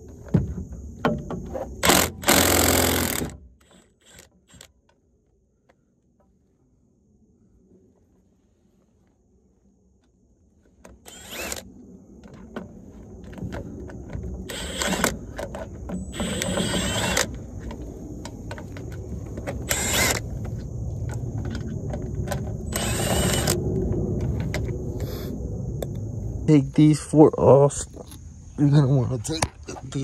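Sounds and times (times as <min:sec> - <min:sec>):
low handling rumble: 0:06.3 - 0:30.0.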